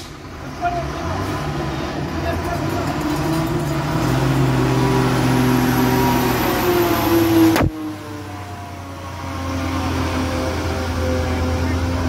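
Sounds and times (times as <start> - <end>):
lorry diesel engine: 0.0 - 12.0
sharp click: 7.5 - 7.7.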